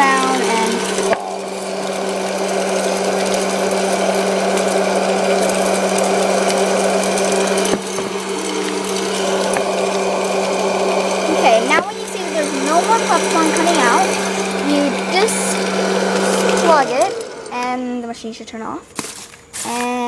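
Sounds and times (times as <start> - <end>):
blown air rushing: 0.0 - 17.8
popcorn machine motor hum: 0.0 - 18.4.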